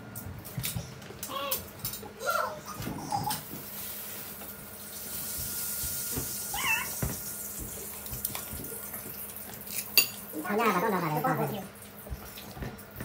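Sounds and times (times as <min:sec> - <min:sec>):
high-pitched wavering cries: 0:06.5 - 0:07.0.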